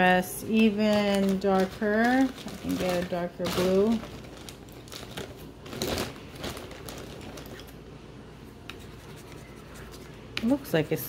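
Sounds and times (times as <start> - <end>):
plastic bag rustling: 0.0 - 7.8.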